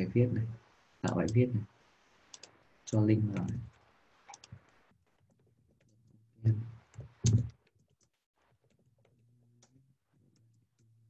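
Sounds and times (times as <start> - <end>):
keyboard typing: 3.2 - 4.8, 6.9 - 8.1.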